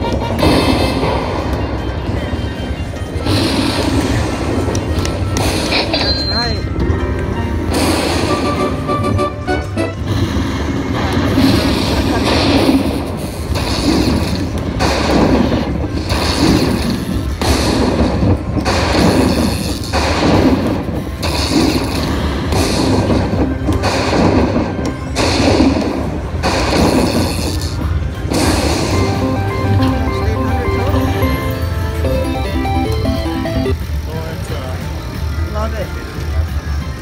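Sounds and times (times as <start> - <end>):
slot machine game music: 0.0 - 10.1, 22.7 - 25.2, 28.0 - 34.1.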